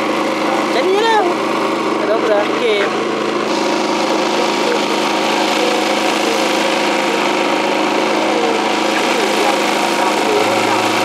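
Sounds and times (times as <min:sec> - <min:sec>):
boat engine droning: 0:00.0 - 0:11.0.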